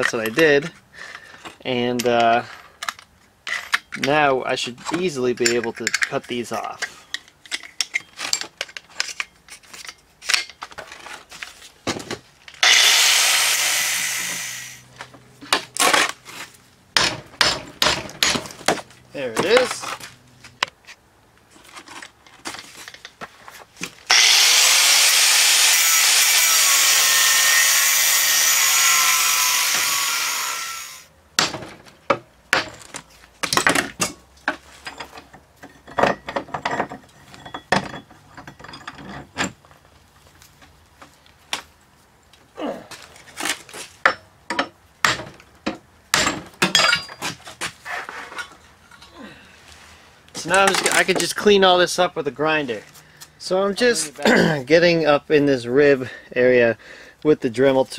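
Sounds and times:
cutoff wheel cutting cast iron: 12.6 - 14.8, 24.1 - 31.7
metal casting and vise clanking: 44.1 - 47.4.

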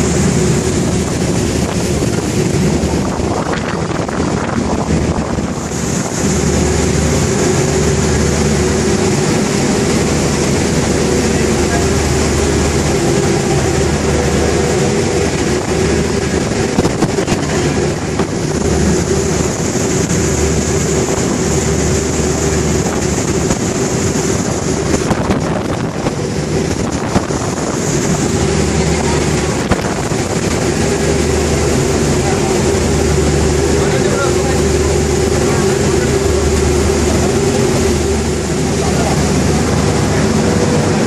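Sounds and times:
ferry engines droning: 0.0 - 41.0
water rushing from wake: 0.0 - 41.0
wind buffeting microphone: 0.0 - 41.0.

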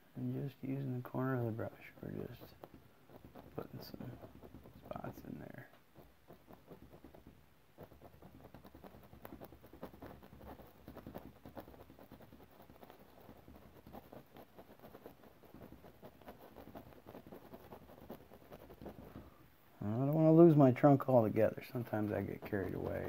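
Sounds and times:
paintbrush tapping on canvas: 2.5 - 19.3.

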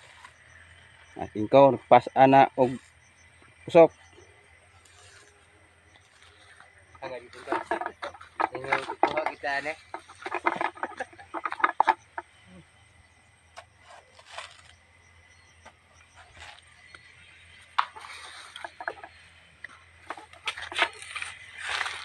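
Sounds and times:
footsteps in dry grass and leaves: 0.0 - 0.6, 4.7 - 11.4, 13.8 - 14.9, 16.0 - 22.0.

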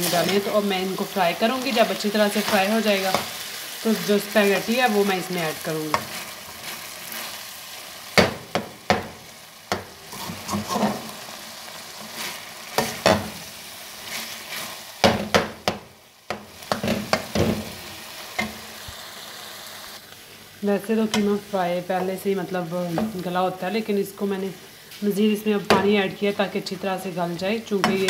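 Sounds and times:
mince sizzling in a pan: 0.0 - 28.0
metal spoon scraping a pan: 10.1 - 11.1.

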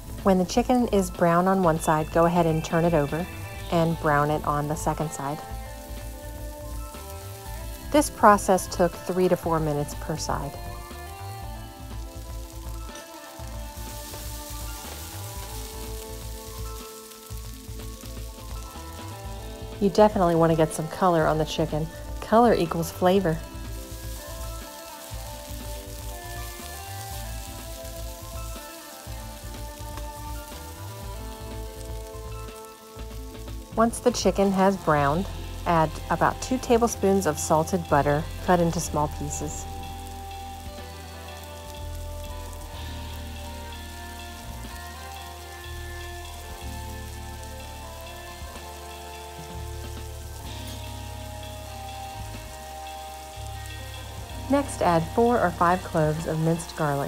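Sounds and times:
background music: 0.0 - 57.0
chicken sizzling in a skillet: 0.0 - 57.0.

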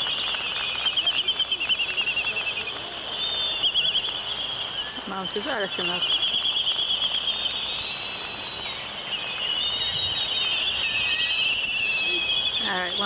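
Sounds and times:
bird chick high-pitched begging squeal: 3.2 - 13.0.

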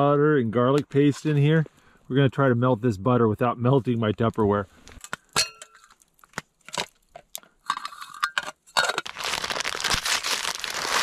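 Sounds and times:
metal pot clinking: 5.3 - 5.9, 7.7 - 9.1
paper bag crinkling: 9.0 - 11.0.

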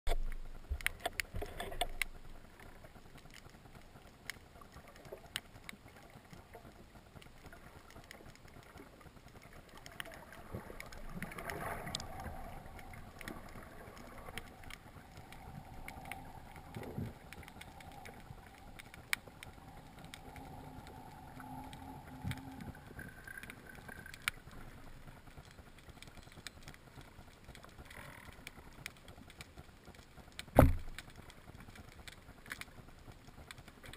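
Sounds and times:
underwater clicks and crackles: 0.1 - 33.9
machine-like hum: 10.4 - 25.3.

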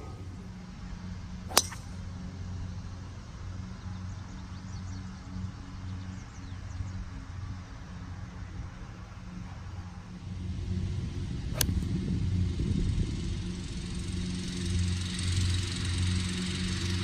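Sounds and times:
steady low hum: 0.0 - 17.0
golf club striking a ball: 1.5 - 2.2, 11.5 - 11.9.

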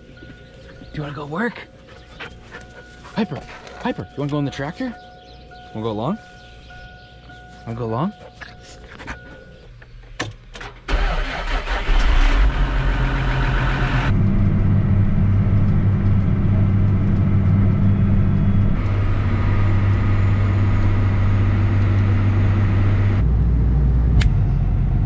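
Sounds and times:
tractor engine starting and running: 10.2 - 25.0.

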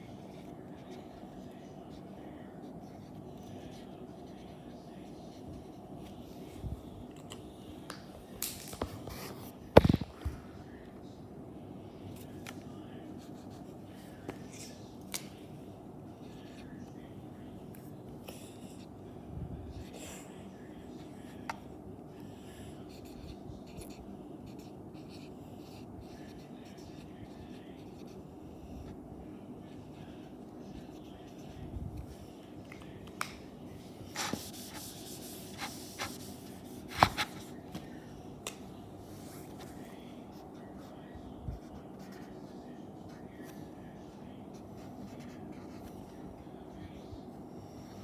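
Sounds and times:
marker scratching on whiteboard: 34.0 - 37.6
eraser rubbing on whiteboard: 34.1 - 37.5.

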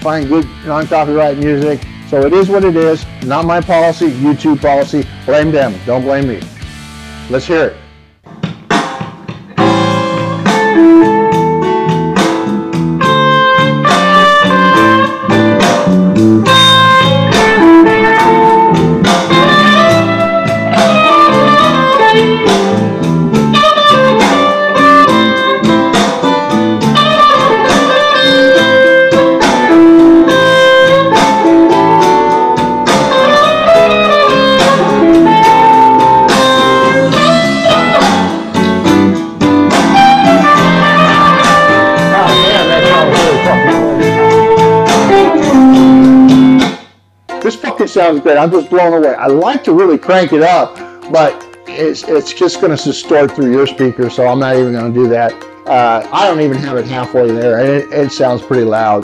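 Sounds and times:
loud music from motorcycle stereo: 13.1 - 46.9.

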